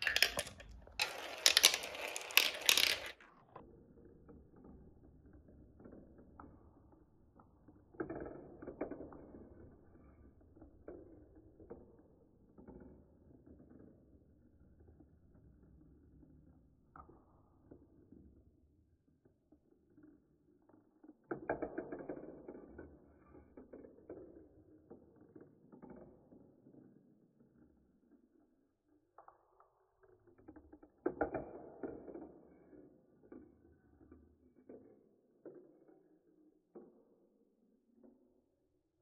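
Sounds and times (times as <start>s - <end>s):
light marble clicks: 0.0s - 3.2s
marbles rolling in plastic funnel: 0.0s - 3.2s.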